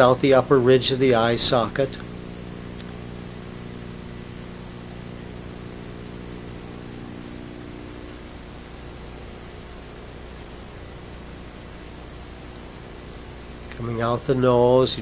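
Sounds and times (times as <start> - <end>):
low even hum: 0.0 - 15.0
steady hiss: 0.0 - 15.0.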